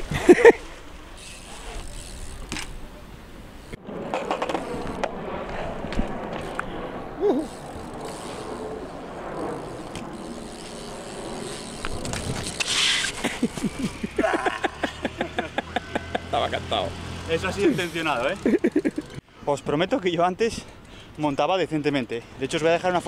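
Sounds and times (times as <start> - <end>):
bike tyres rolling on concrete: 0.0 - 23.0
bike knocks and clatters: 1.7 - 2.8, 4.1 - 5.1, 11.5 - 13.8.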